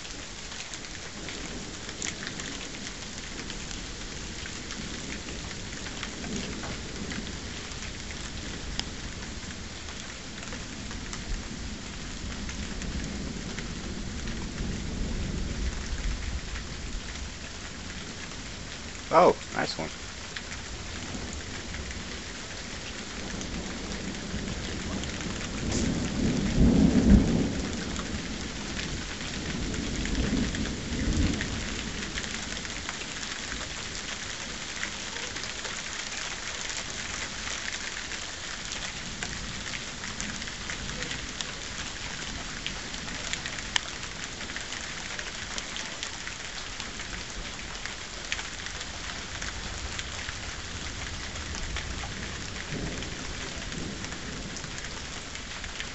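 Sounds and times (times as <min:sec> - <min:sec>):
rain hissing: 0:00.0 - 0:55.9
thunder rumbling: 0:20.8 - 0:32.3.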